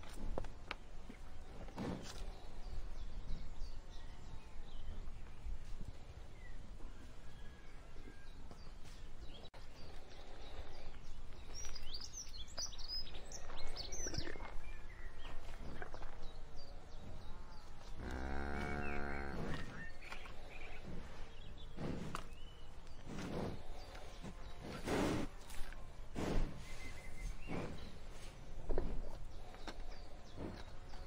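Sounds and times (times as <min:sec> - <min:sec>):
small birds chirping: 0:00.0 - 0:31.0
cow mooing: 0:18.0 - 0:19.7.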